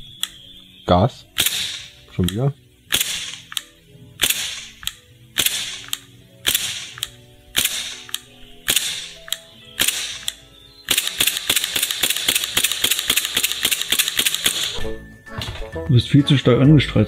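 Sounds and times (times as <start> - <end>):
airsoft pistol shots: 1.4 - 2.0, 2.9 - 3.6, 4.2 - 9.2, 9.8 - 14.8
fast clicks: 1.4 - 14.8.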